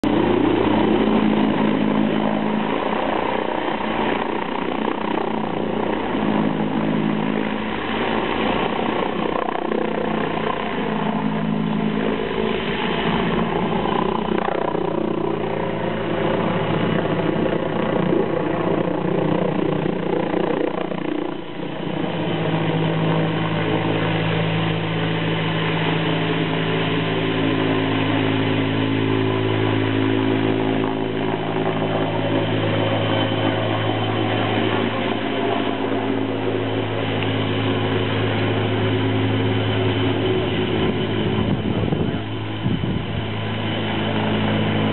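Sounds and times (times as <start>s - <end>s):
helicopter rotor drone: 0.0s - 44.9s.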